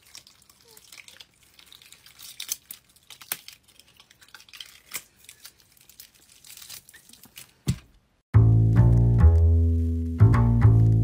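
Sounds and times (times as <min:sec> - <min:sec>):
latex peeling off skin: 0:00.0 - 0:07.6.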